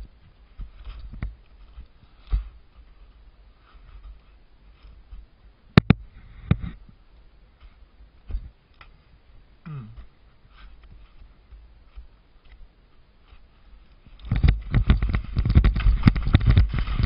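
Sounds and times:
skis scraping on hard snow: 13.3s - 17.0s.

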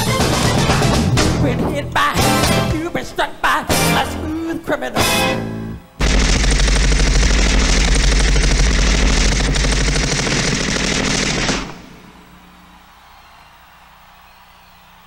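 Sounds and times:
machine-gun fire: 6.0s - 12.2s.

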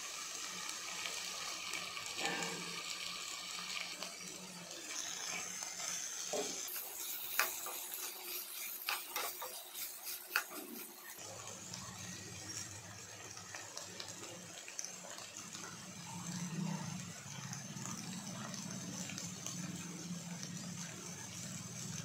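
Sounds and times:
faint frying sizzle: 0.0s - 22.0s
spoon scraping potatoes in pan: 6.4s - 11.2s.

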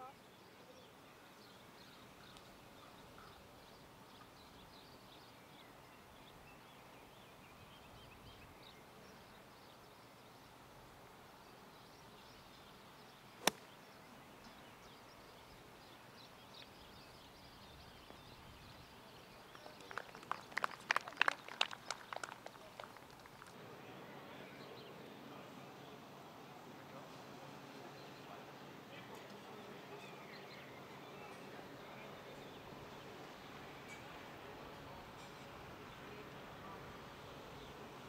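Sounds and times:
golf club striking ball: 13.4s - 13.7s.

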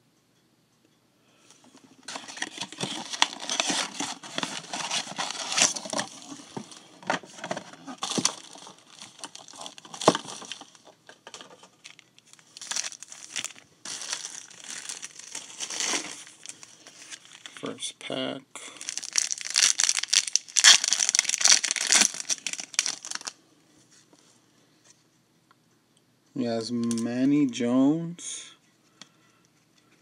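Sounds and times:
plastic packaging crinkling and tearing: 2.0s - 17.7s, 18.7s - 23.4s.

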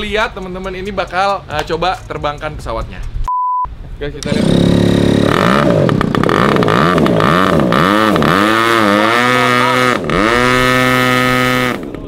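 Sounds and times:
model airplane engine revving: 4.2s - 12.0s.

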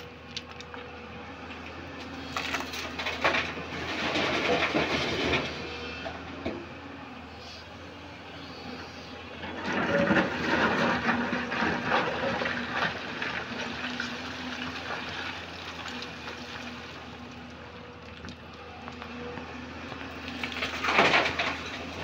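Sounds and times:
excavator diesel engine: 0.0s - 22.0s
stones scraping and clattering: 2.3s - 5.6s, 9.4s - 14.0s, 19.9s - 22.0s.

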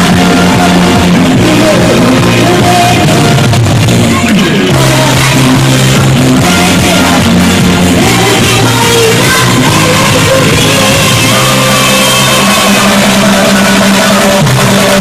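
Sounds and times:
live pop music: 0.0s - 15.0s
person singing: 0.0s - 15.0s
steady bass line: 0.0s - 15.0s.

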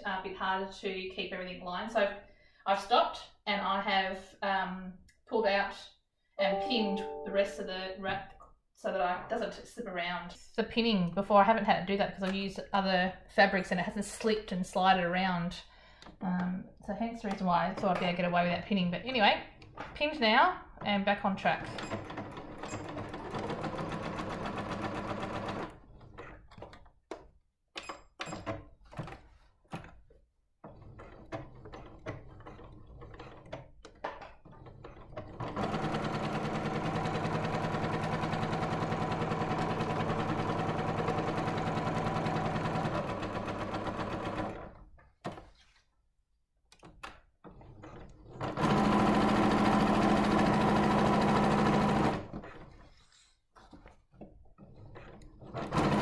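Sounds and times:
sewing machine stitching: 21.5s - 26.8s, 30.6s - 33.6s, 34.4s - 44.8s, 47.5s - 53.9s, 54.6s - 56.0s.

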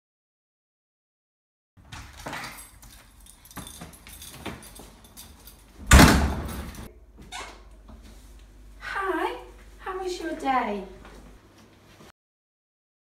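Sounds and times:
keys jangling: 2.0s - 6.9s
door shutting thud: 5.9s - 6.9s.

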